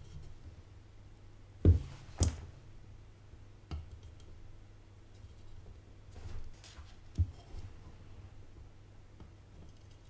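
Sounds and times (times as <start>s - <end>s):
knocks on workbench: 1.7s - 1.9s.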